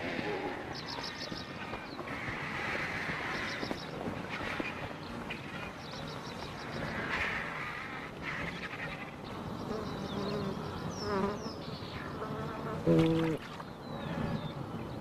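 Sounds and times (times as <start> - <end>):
insects buzzing: 5.1 - 14.7.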